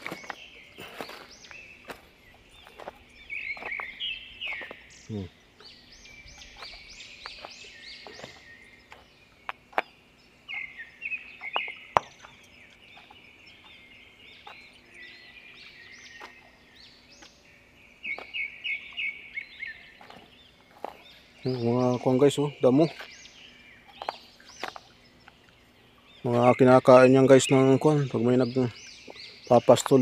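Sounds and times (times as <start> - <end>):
footsteps on loose stones: 0.0 - 5.0, 6.3 - 10.0, 11.4 - 14.7, 18.1 - 18.4, 19.5 - 23.2, 23.9 - 24.9, 29.0 - 30.0
small birds chirping: 0.0 - 30.0.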